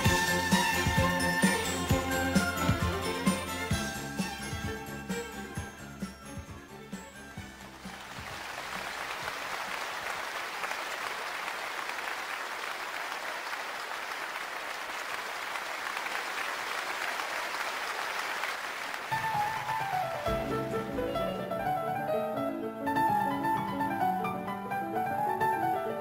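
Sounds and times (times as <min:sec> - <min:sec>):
applause: 0:07.6 - 0:20.3
plucked string music: 0:20.3 - 0:23.2.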